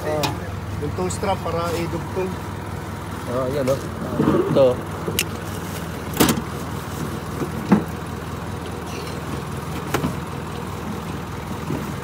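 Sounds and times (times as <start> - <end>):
car engine running: 0.0 - 12.0
sharp knocks and clunks: 7.3 - 8.0.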